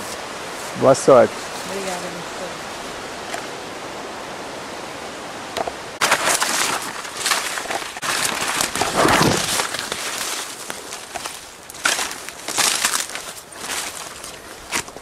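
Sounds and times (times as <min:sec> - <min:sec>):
running water hiss: 0:00.0 - 0:08.6
brushing undergrowth: 0:06.0 - 0:15.0
footsteps through leaf litter: 0:06.0 - 0:15.0.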